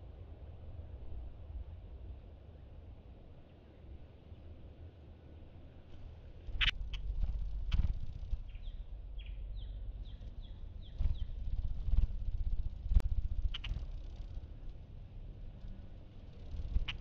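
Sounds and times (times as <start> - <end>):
hummingbird wings humming: 6.4 - 17.0.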